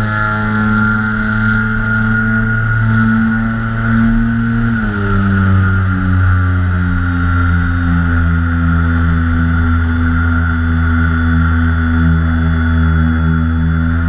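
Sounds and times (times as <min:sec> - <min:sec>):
model plane motors humming: 0:00.0 - 0:14.0.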